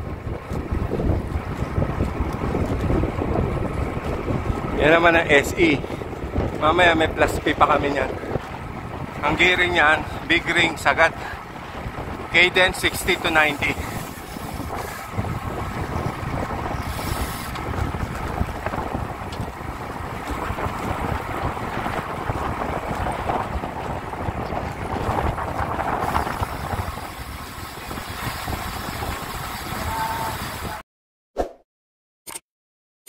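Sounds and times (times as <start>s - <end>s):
wind buffeting microphone: 0.0s - 30.8s.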